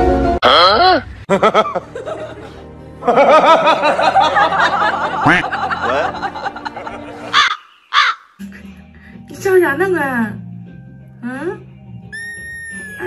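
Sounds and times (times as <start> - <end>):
person giggling: 5.2 - 6.0.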